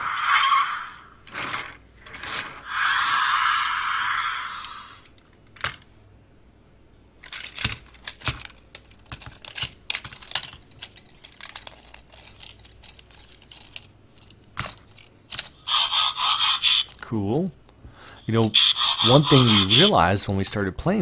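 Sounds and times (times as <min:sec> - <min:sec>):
plastic toy parts clicking: 0:07.2 - 0:15.6.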